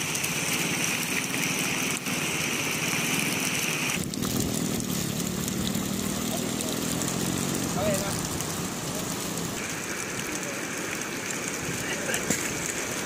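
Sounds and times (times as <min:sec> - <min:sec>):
boat engine running: 0:03.9 - 0:09.6.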